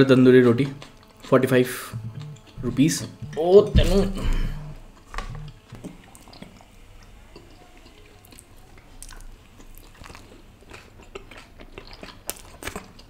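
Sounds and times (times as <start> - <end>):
chewing and biting flatbread: 0.0 - 13.0.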